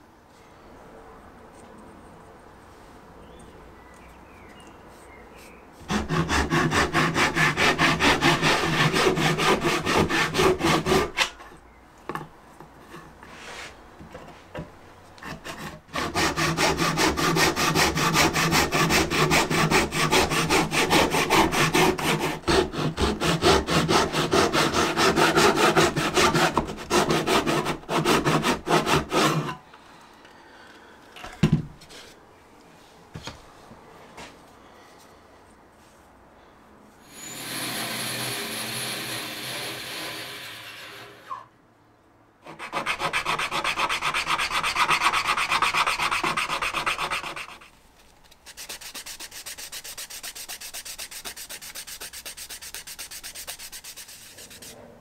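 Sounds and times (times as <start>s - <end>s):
woodworking tool strokes on wood: 12.9s - 13.8s, 37.0s - 41.5s.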